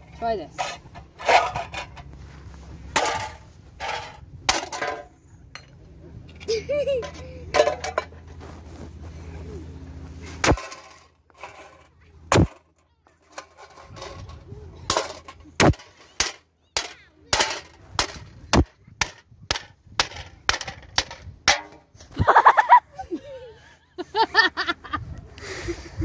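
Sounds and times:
wood being chopped: 0:12.3 - 0:12.6, 0:15.6 - 0:21.8.

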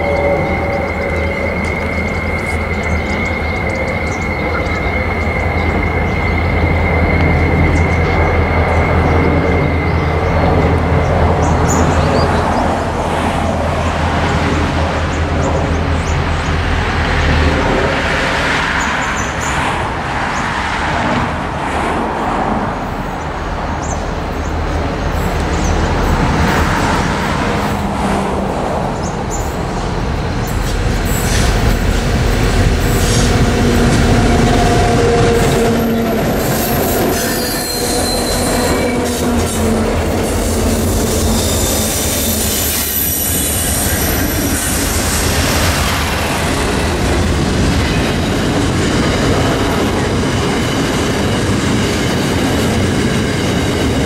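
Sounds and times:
diesel locomotive engines: 0:00.0 - 0:54.0
train wagons rail noise: 0:00.0 - 0:54.0
wheels squealing on curve: 0:32.8 - 0:47.0.

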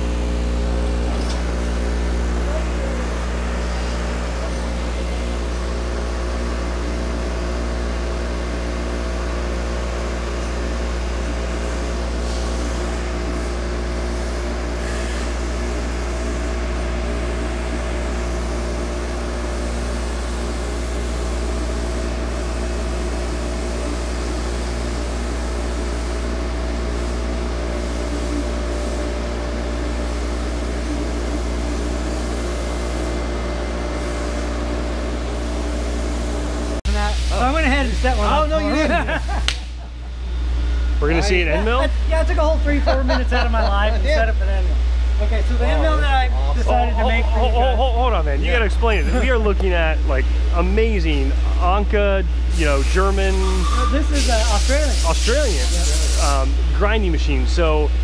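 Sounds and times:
tool grinder drone: 0:10.4 - 0:36.8
coolant spray hiss: 0:36.9 - 0:39.4, 0:52.5 - 0:56.7.

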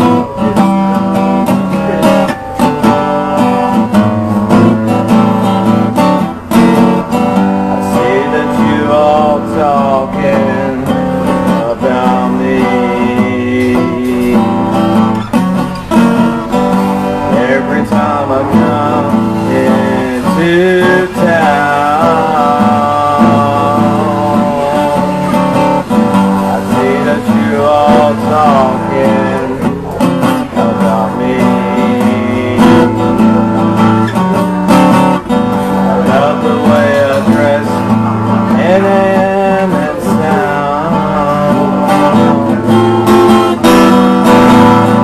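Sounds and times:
acoustic guitar strumming: 0:00.0 - 0:45.0
man singing: 0:00.0 - 0:45.0.

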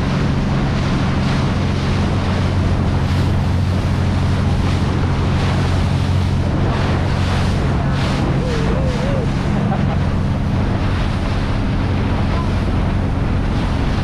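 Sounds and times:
boat engine drone: 0:00.0 - 0:14.0
water rushing along hull: 0:00.0 - 0:14.0
wind buffeting microphone: 0:00.0 - 0:14.0.

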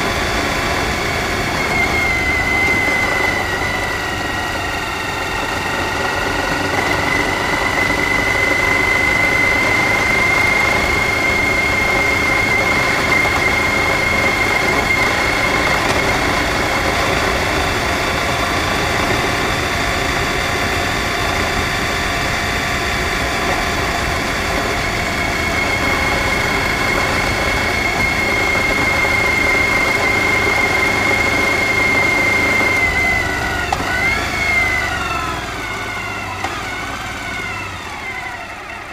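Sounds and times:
motorcycle engine cruising: 0:00.0 - 0:38.9
steady high whine: 0:00.0 - 0:38.9
wind and road noise: 0:00.0 - 0:38.9.

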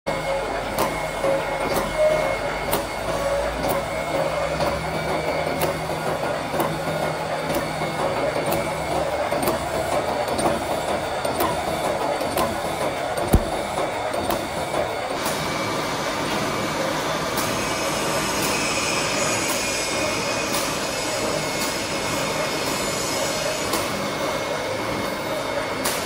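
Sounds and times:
welding machine clatter: 0:13.3 - 0:14.1.

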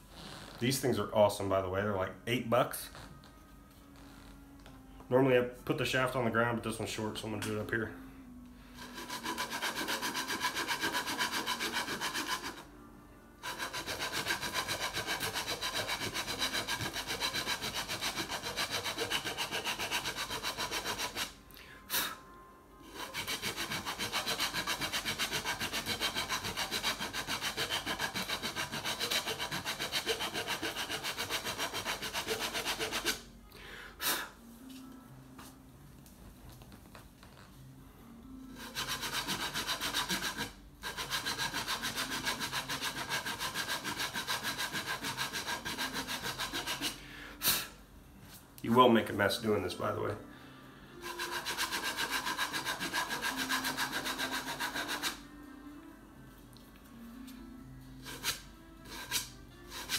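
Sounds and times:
cue tip shaper rasping: 0:08.8 - 0:12.7, 0:13.4 - 0:21.4, 0:23.0 - 0:33.2, 0:51.1 - 0:55.2.

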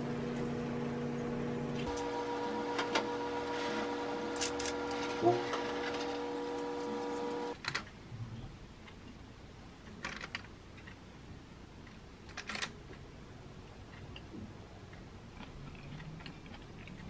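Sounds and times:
air fryer fan humming: 0:00.0 - 0:07.6.

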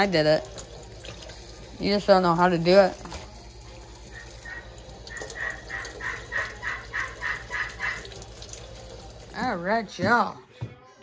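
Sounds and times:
kitchen tap running: 0:00.0 - 0:10.4
fowl making harsh calls: 0:04.2 - 0:08.1.

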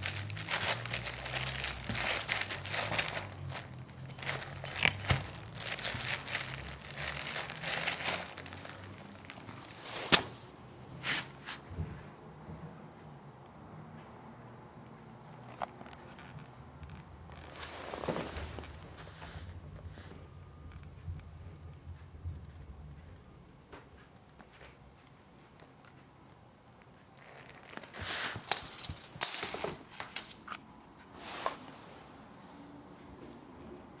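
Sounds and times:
plastic bag crinkling: 0:00.0 - 0:10.2, 0:27.2 - 0:30.6.

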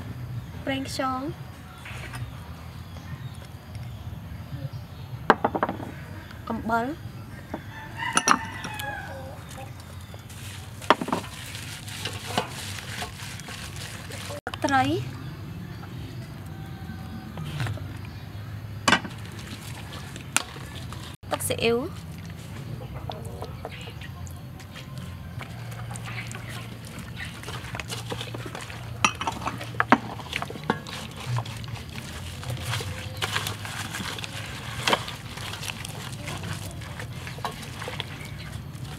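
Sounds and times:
clinks against metal bowl: 0:08.1 - 0:08.8, 0:28.4 - 0:31.1
wet squelching of raw meat: 0:08.5 - 0:14.5, 0:19.1 - 0:21.2, 0:24.2 - 0:38.9.

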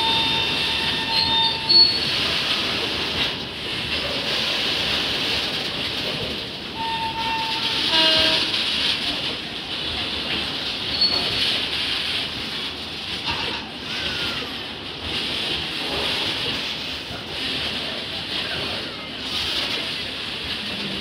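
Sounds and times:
high-pitched wheel squeals: 0:00.0 - 0:02.2, 0:06.8 - 0:08.2.

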